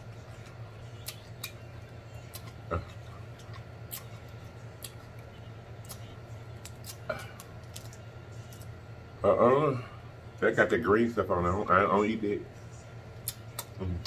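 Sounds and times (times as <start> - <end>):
steady low hum: 0.0 - 14.0
crab shell cracking: 5.8 - 8.7.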